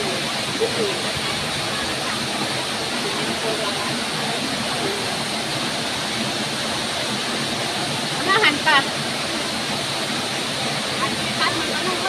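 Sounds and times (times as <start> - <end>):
waterfall splashing: 0.0 - 12.0.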